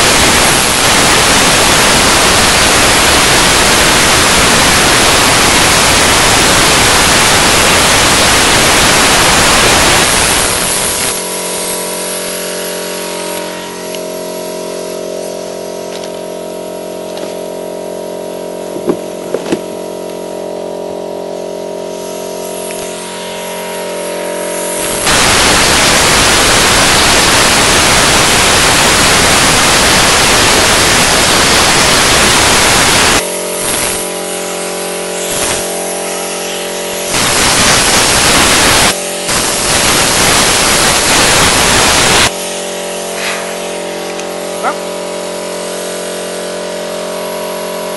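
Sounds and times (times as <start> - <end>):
spray-cleaning tool hissing: 0.0 - 16.6, 21.8 - 47.4
machine humming: 0.0 - 47.9.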